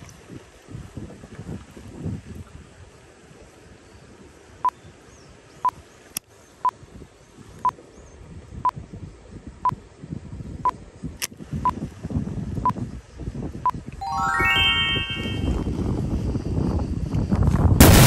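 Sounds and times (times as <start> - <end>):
low wind rumble: 6.8 - 14.0, 15.2 - 18.0.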